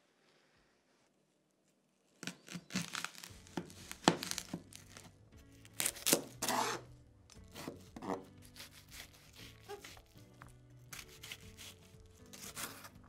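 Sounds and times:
quiet background music: 1.5 - 13.0
onion skin crackling: 2.1 - 6.7, 7.4 - 13.0.

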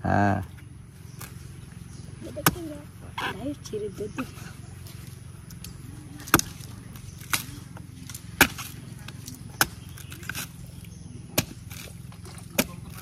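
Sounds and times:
machete chopping coconut husk: 2.3 - 3.4, 4.9 - 13.0.

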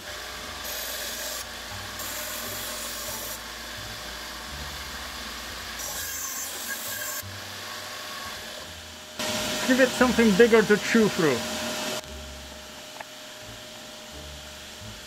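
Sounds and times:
band saw cutting wood: 0.0 - 12.0
band saw running: 0.0 - 15.0.

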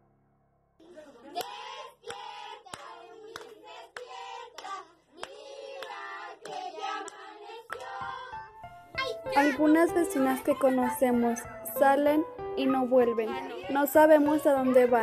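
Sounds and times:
hand claps: 1.4 - 8.2.

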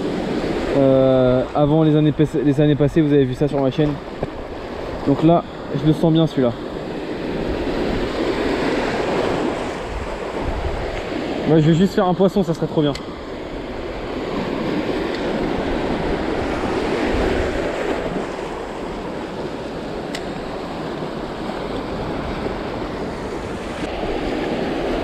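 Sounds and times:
sea surf breaking over rocks: 0.0 - 25.0
wind on microphone: 6.5 - 11.6, 13.0 - 25.0.

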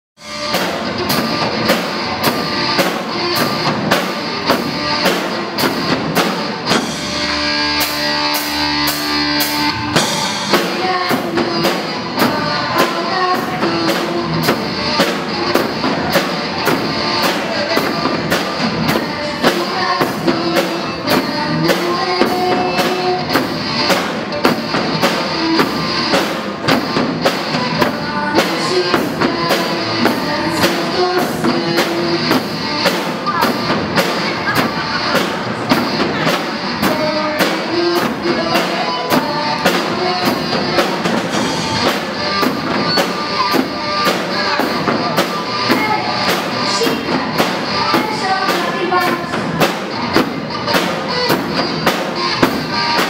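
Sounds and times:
drums beating steady pulse: 0.2 - 53.0
live rock band playing: 0.2 - 53.0.

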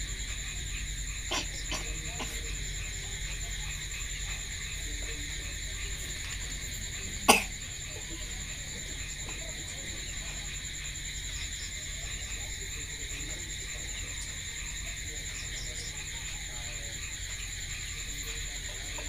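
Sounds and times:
loud cough: 1.3 - 2.5, 7.2 - 7.6.

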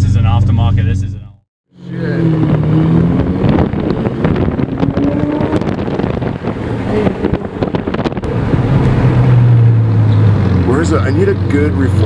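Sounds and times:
exhaust crackles: 1.8 - 12.0
sports car engine running: 1.8 - 12.0
wind buffeting microphone: 2.2 - 10.6.

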